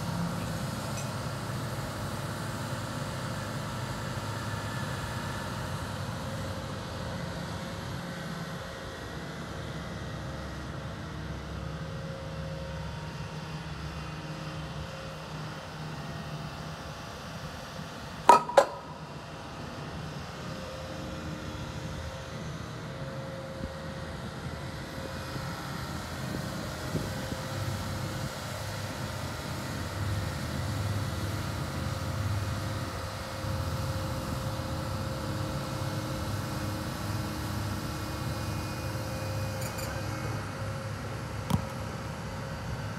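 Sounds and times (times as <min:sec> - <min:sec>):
diesel engine and hydraulics running: 0:00.0 - 0:42.9
sharp metal clanks: 0:18.3 - 0:19.0.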